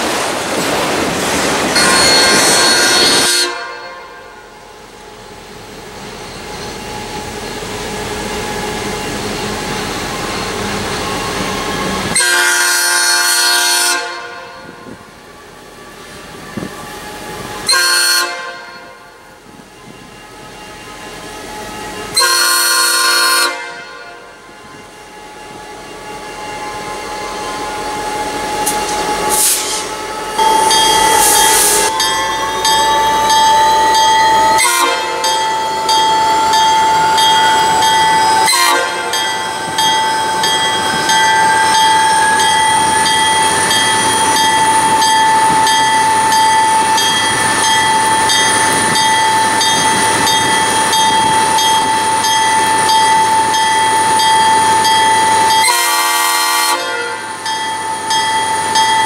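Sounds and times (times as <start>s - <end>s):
locomotive air horn: 1.8s - 4.3s, 12.1s - 14.8s, 17.6s - 19.1s, 22.1s - 24.3s, 34.4s - 35.3s, 38.3s - 39.2s, 55.5s - 57.3s.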